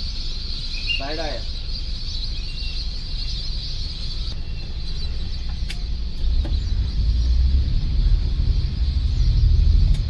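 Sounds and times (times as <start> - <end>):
faint bird chirps: 0.0 - 10.0
sharp clicks: 5.5 - 6.6.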